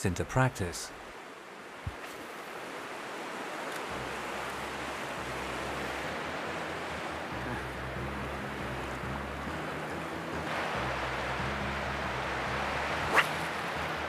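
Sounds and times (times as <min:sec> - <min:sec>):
deep water rumble: 0:03.9 - 0:14.0
river rapids rushing over rocks: 0:09.5 - 0:14.0.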